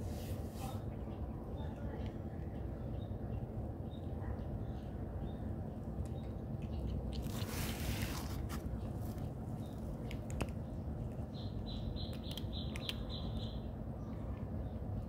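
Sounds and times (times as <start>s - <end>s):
low background noise: 0.0s - 15.0s
cats crunching dry kibble: 5.5s - 15.0s.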